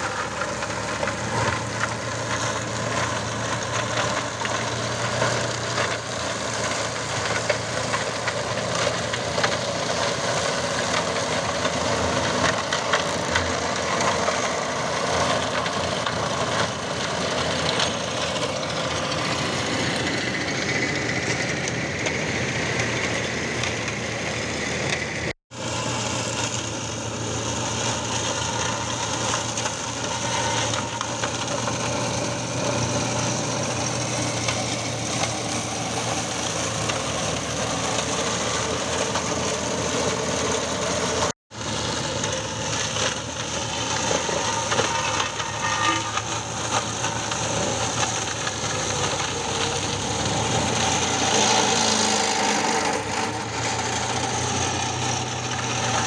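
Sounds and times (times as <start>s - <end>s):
flail mulcher grinding branches: 0.0s - 56.0s
tractor engine running: 0.0s - 56.0s.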